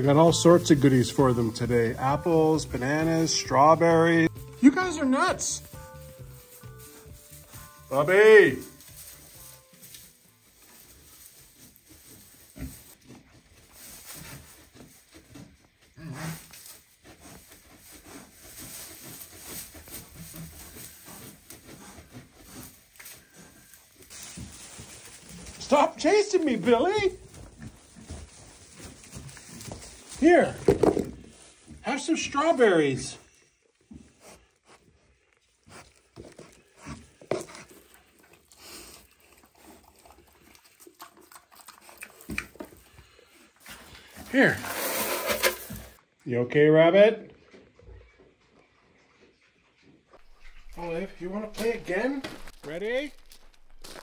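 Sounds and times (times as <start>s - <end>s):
pigs crunching and chewing: 0.0s - 32.6s, 33.3s - 46.0s, 47.4s - 54.0s
pigs grunting: 15.8s - 17.2s
pig grunts: 16.0s - 16.5s.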